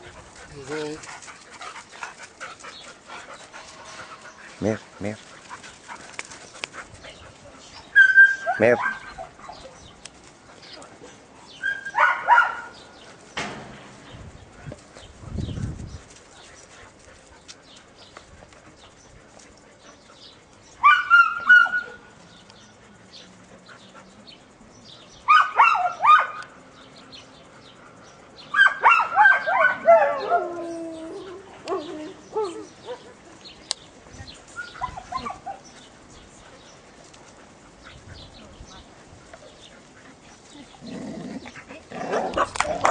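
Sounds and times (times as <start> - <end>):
dogs barking excitedly: 0.0 - 9.8, 11.2 - 13.2, 19.7 - 33.4, 34.6 - 35.8, 39.0 - 42.9.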